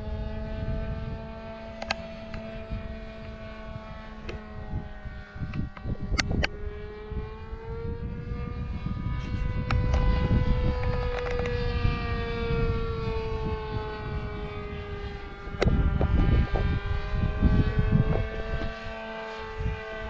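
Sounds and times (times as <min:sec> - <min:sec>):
model airplane motor whining: 0:00.0 - 0:20.0
wind on microphone: 0:00.0 - 0:20.0.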